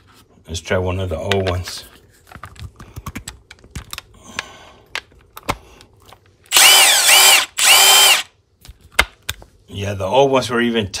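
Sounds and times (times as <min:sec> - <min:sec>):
impact wrench motor whir: 0:06.5 - 0:08.3.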